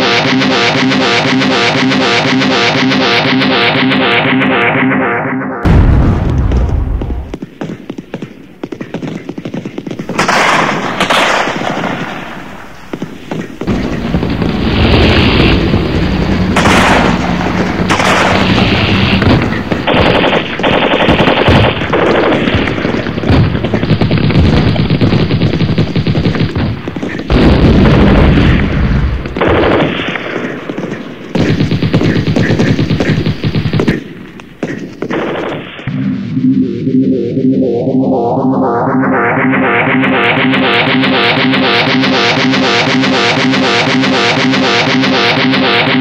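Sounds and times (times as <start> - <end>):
machine-gun fire: 0.0 - 4.7, 10.1 - 35.9, 39.7 - 46.0
gunshots: 0.0 - 36.0, 39.2 - 46.0.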